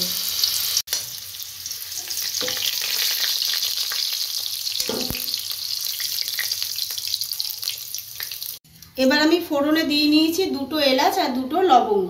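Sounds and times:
potatoes sizzling in oil: 0.0s - 8.6s.

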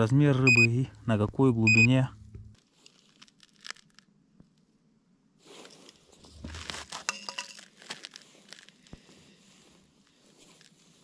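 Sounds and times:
crinkling crackling rustle: 2.5s - 4.7s, 5.4s - 11.0s.

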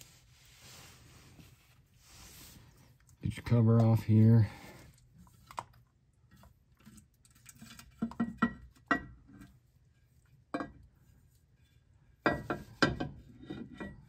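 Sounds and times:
metal cover knocking and clinking: 10.6s - 10.8s, 12.2s - 14.0s.

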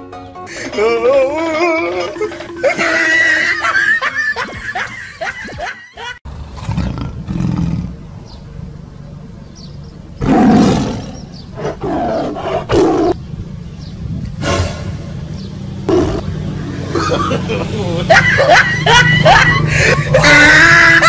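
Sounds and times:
tiger growling: 6.4s - 8.0s, 10.2s - 13.2s
tiger roaring: 6.5s - 8.0s, 10.2s - 13.2s.

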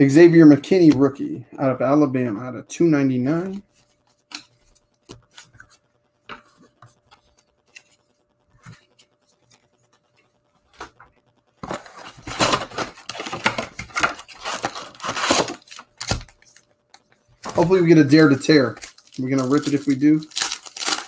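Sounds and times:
cardboard box tearing open: 11.6s - 16.3s, 18.8s - 21.0s.

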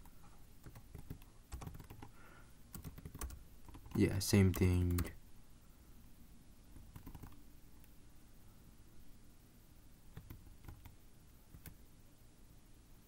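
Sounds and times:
keyboard key presses: 0.6s - 2.1s, 2.7s - 5.1s, 6.8s - 7.4s.

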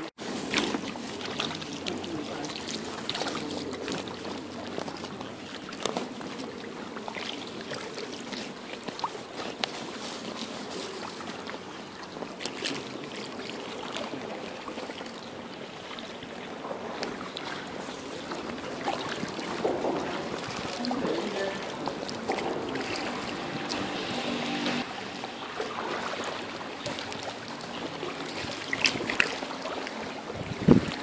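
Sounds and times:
paddles dipping in water: 0.0s - 31.0s
water drips and splashes: 0.0s - 31.0s.

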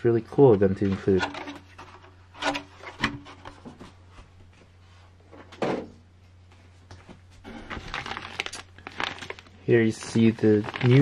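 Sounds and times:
plastic bags crinkling: 7.5s - 11.0s.

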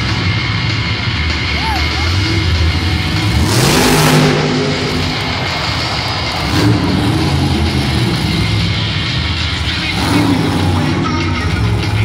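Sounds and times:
truck engine revving: 0.0s - 12.0s
loud blast: 3.4s - 8.2s.

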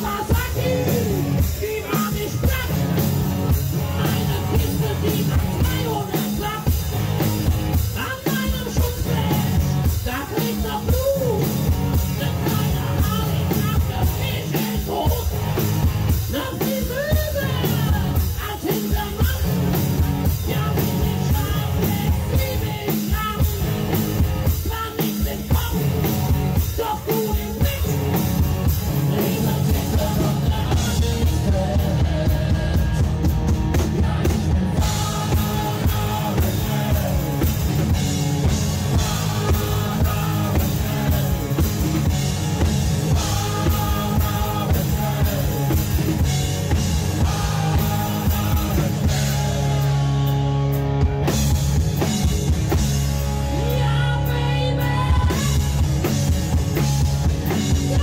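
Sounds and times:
rock music with singing: 0.0s - 58.0s.

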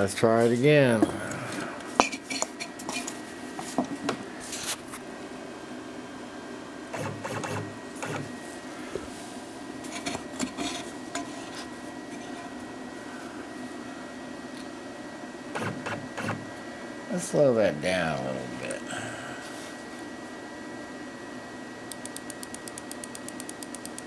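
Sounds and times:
machine whine and hum: 0.0s - 24.0s.

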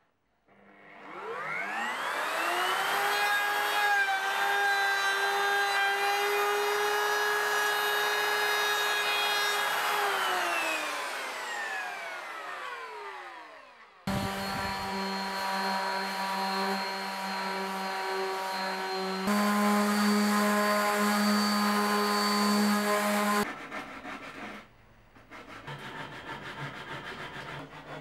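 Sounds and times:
router whining: 0.8s - 23.5s
orbital sander humming: 14.1s - 23.5s.

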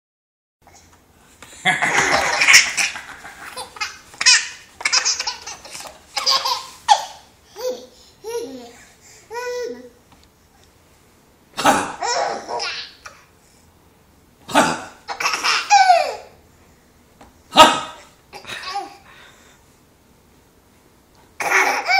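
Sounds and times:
baby giggling and squealing: 1.9s - 8.6s, 12.0s - 13.2s, 15.2s - 16.3s, 21.4s - 21.9s.

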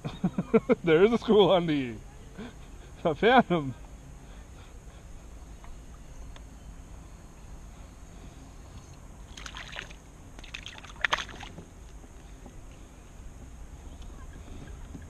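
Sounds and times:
low wind rumble: 0.0s - 15.0s
splashing: 9.3s - 11.6s
water sloshing against kayak: 9.4s - 11.6s.

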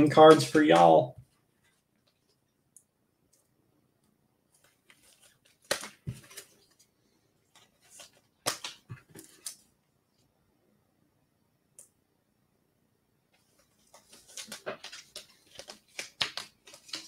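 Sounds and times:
packaging rustling: 13.4s - 17.0s.

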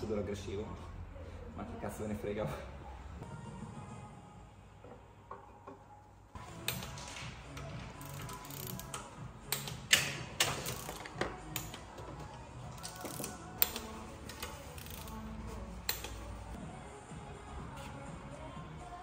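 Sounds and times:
background music: 0.0s - 19.0s
ratchet wrench clicking: 8.0s - 11.9s, 12.8s - 15.2s.

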